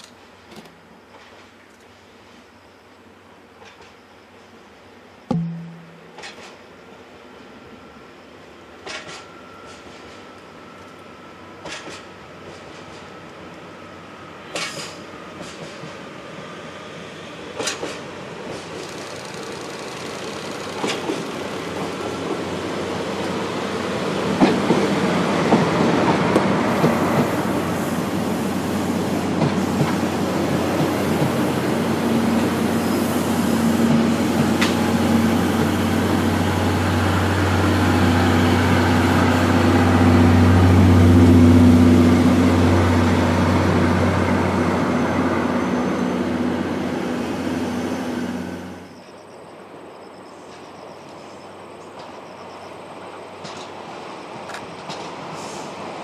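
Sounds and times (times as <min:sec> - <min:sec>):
diesel engine drone: 0:32.1 - 0:48.9.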